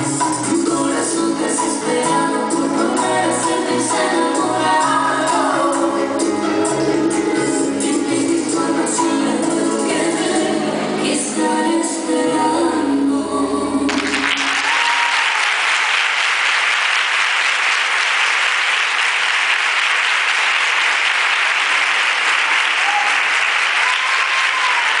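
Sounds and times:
bachata music: 0:00.0 - 0:15.0
audience applauding: 0:13.9 - 0:25.0.

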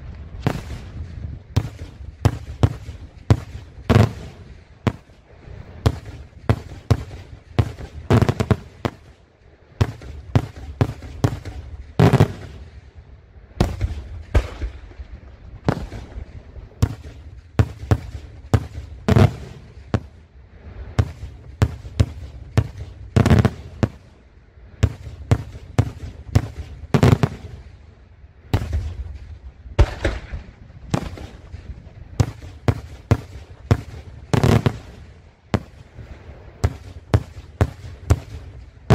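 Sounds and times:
low rumble: 0:00.0 - 0:38.9
fireworks shells bursting: 0:32.2 - 0:35.0.

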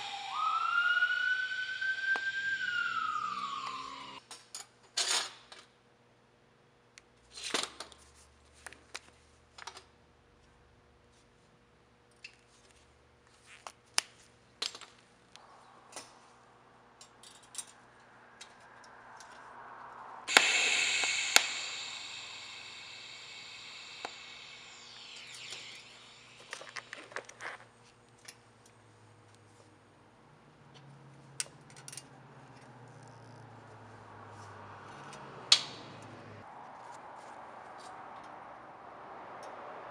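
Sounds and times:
welding arc buzz: 0:20.3 - 0:27.4.

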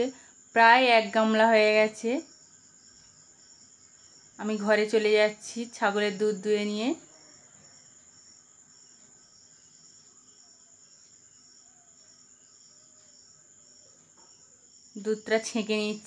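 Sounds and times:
crickets chirping: 0:00.0 - 0:16.0.

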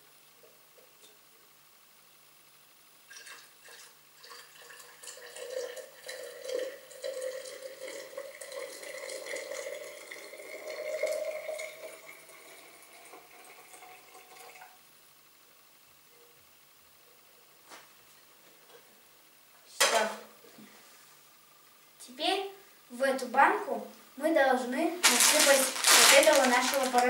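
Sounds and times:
water pouring into a glass jar: 0:03.1 - 0:14.8, 0:25.0 - 0:27.0.

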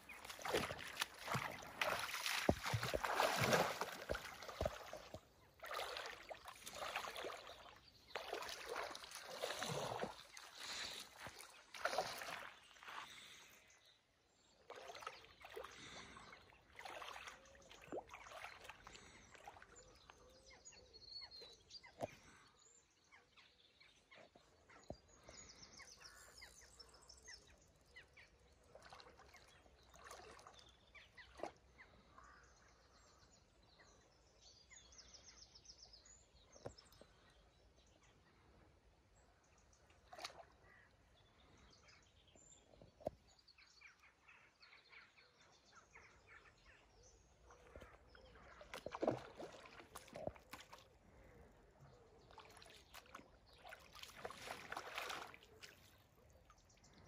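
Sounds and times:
river water splashing: 0:00.0 - 0:13.6, 0:14.7 - 0:19.8, 0:28.7 - 0:31.6, 0:40.0 - 0:40.6, 0:47.5 - 0:57.0.

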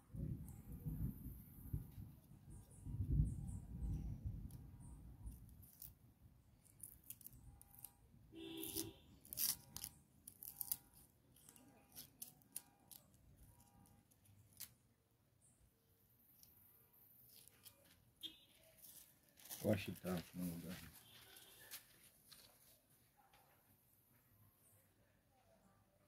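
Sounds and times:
knife snipping onion skin: 0:05.4 - 0:06.0, 0:06.6 - 0:07.9, 0:08.6 - 0:13.1.

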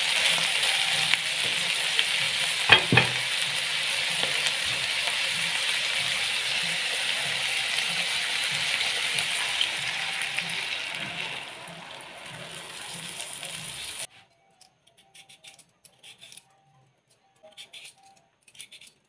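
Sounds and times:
meat sizzling in a frying pan: 0:00.0 - 0:14.1.

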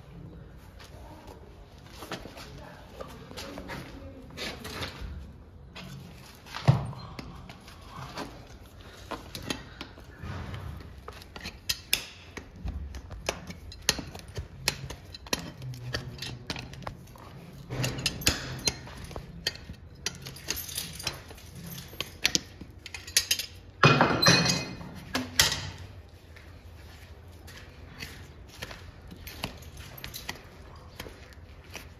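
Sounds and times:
metal tools tapping on hoof: 0:05.8 - 0:25.8, 0:27.4 - 0:31.9.

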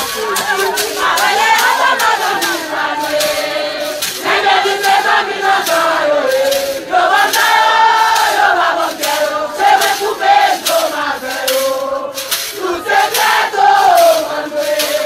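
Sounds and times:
crowd singing and chanting: 0:00.0 - 0:15.0.

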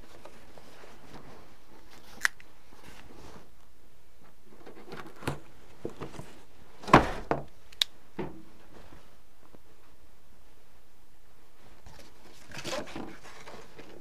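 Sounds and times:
cardboard scraping: 0:11.8 - 0:14.0.

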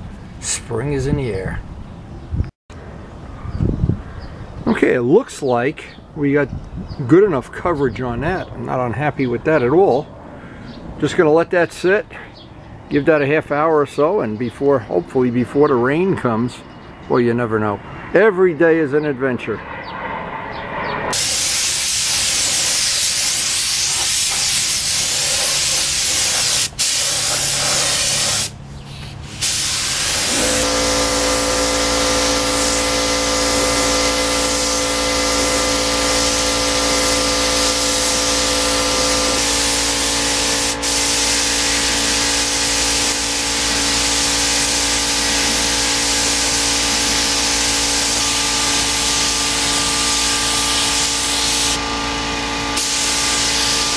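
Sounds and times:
spray gun hissing: 0:21.1 - 0:51.8, 0:52.8 - 0:53.9.

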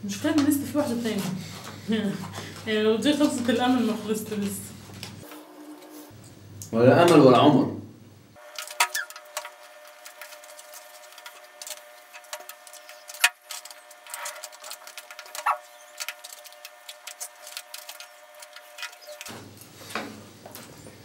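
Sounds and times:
faint steady hum: 0:00.0 - 0:21.0
forks scraping foil trays: 0:08.4 - 0:20.3.

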